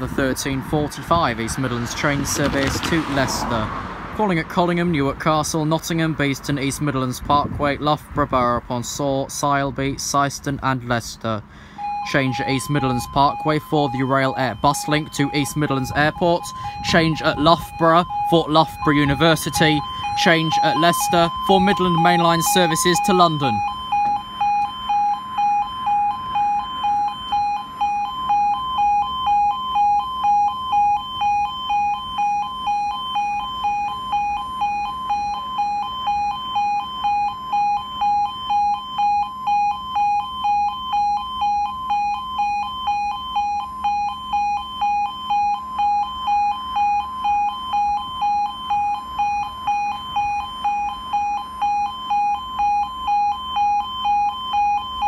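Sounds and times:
two-tone electronic warble alarm: 11.6 - 55.0.

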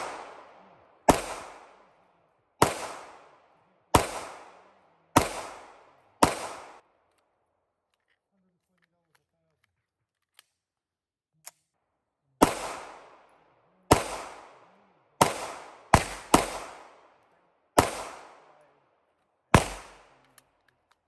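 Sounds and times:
pistol shots echoing: 0.0 - 6.8, 12.4 - 18.8, 19.5 - 20.4.

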